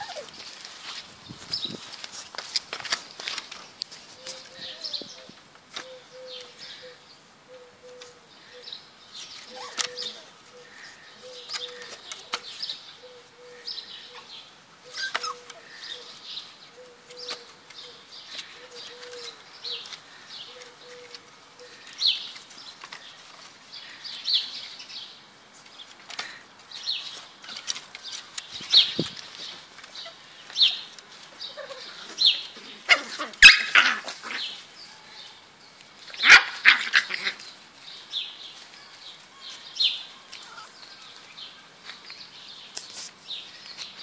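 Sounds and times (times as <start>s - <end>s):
puppies yipping and whining: 0.0s - 0.3s, 9.4s - 10.2s, 14.9s - 15.6s.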